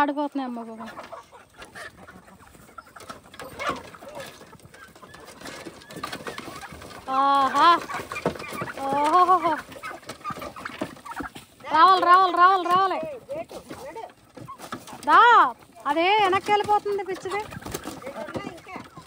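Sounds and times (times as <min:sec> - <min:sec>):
chickens clucking: 0:00.0 - 0:19.0
drawn-out wavering chicken calls: 0:00.1 - 0:19.0.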